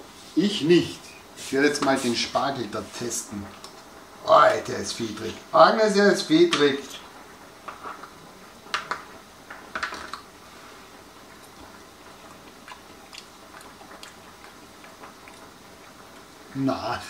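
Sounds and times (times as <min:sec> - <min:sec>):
faint chewing: 0:11.3 - 0:16.4.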